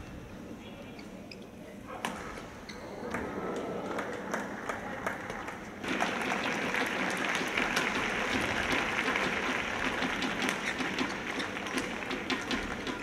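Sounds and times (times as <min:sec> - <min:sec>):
spectators applauding: 0:03.8 - 0:13.0.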